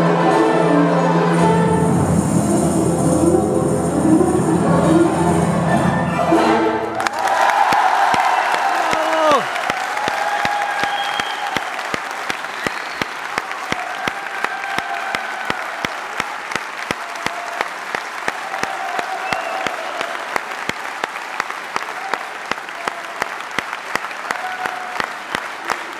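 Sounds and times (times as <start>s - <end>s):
audience applauding: 6.9s - 25.9s
rhythmic clapping: 6.9s - 25.9s.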